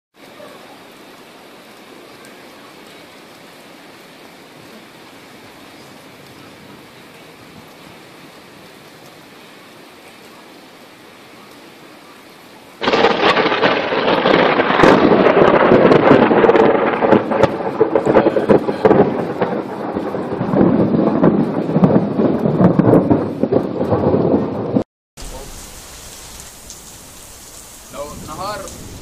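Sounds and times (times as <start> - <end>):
steady rain: 0.1 - 29.0
thunder crack and rumble: 12.8 - 25.5, 27.9 - 29.0.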